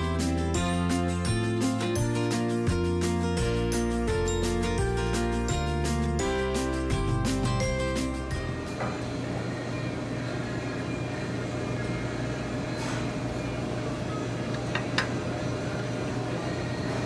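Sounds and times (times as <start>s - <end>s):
kitchen exhaust fans humming: 5.0s - 17.0s.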